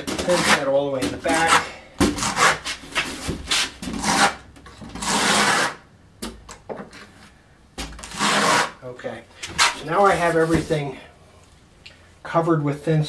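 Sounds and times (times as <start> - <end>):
trowel scraping mortar: 0.0 - 4.4, 5.0 - 5.8.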